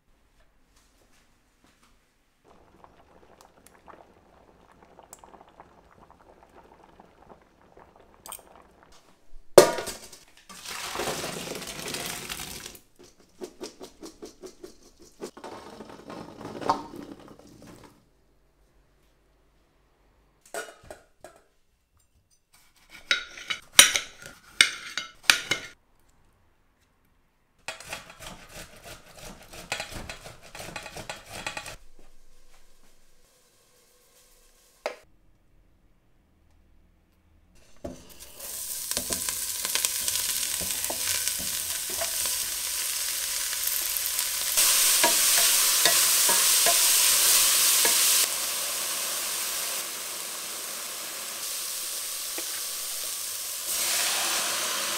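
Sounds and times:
utensils clinking against pots: 0:23.0 - 0:25.8, 0:44.6 - 0:48.3.

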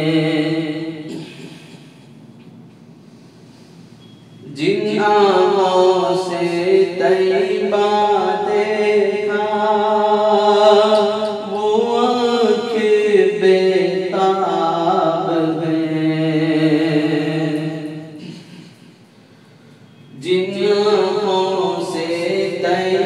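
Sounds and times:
man chanting devotional poem: 0:00.0 - 0:01.9, 0:04.4 - 0:18.9, 0:20.2 - 0:23.0.

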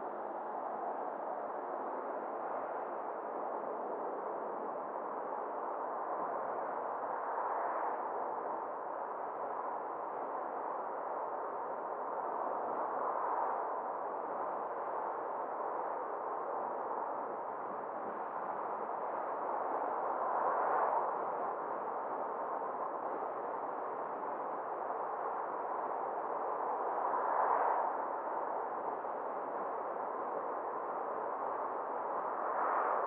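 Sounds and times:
car road and wind noise: 0:18.0 - 0:33.0.

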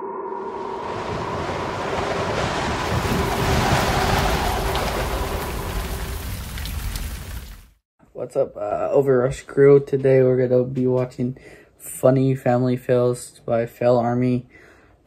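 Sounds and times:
rushing wave-like noise: 0:00.0 - 0:07.2.

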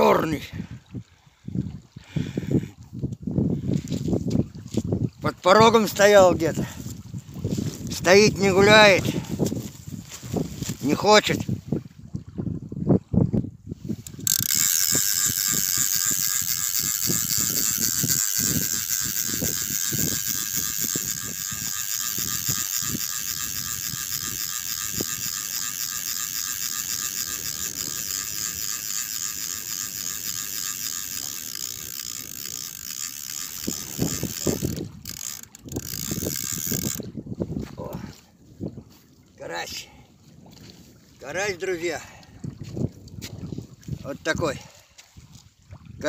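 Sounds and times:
fishing reel ratcheting whirr: 0:07.9 - 0:09.4, 0:13.9 - 0:37.1.

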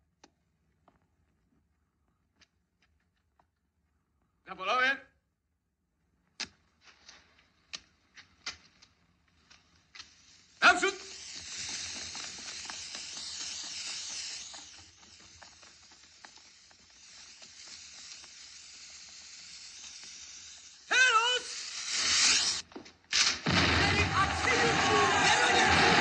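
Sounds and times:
smoke canisters hissing: 0:06.4 - 0:26.0.

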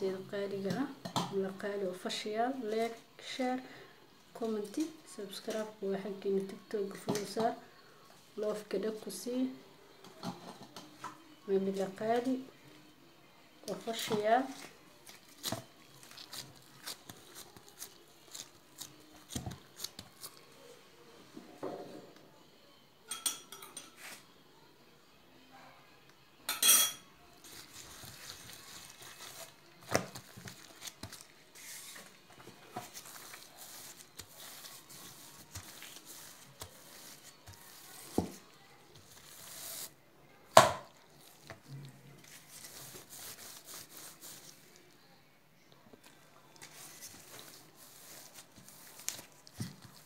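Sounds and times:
rolling pin rubbing dough: 0:30.6 - 0:39.9, 0:42.2 - 0:44.7.

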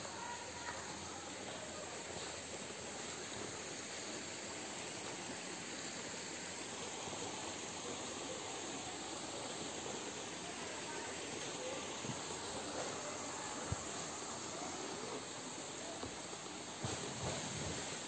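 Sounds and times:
forest ambience hiss: 0:00.0 - 0:18.0.

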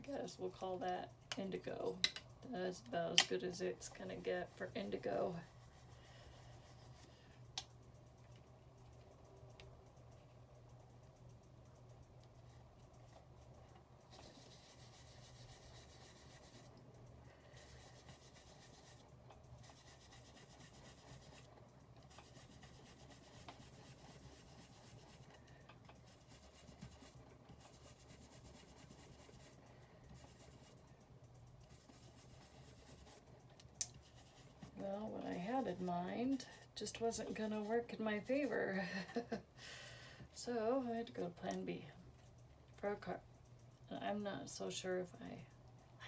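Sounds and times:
foam tool rubbing on cardstock: 0:14.1 - 0:16.7, 0:17.6 - 0:19.0, 0:19.6 - 0:21.5, 0:22.1 - 0:25.4.

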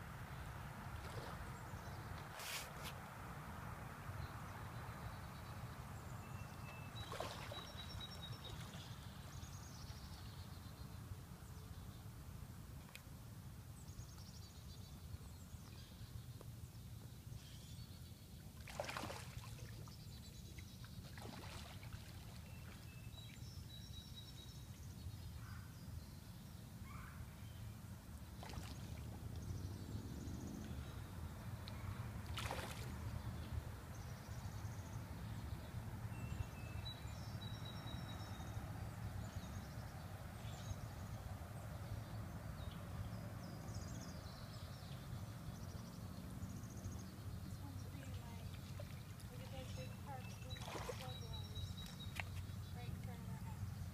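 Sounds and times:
fish splashing in water: 0:07.0 - 0:08.0, 0:18.6 - 0:19.8, 0:21.0 - 0:22.8, 0:28.4 - 0:29.1, 0:32.3 - 0:33.0, 0:50.5 - 0:51.2
small birds chirping: 0:28.4 - 0:53.9.

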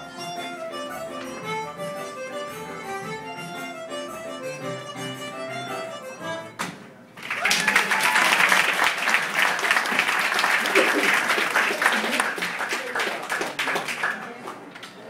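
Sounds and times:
audience applause: 0:07.2 - 0:15.0.

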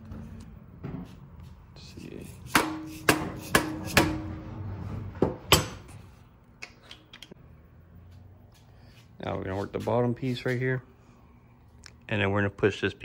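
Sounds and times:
mallet striking metal: 0:02.5 - 0:04.3.

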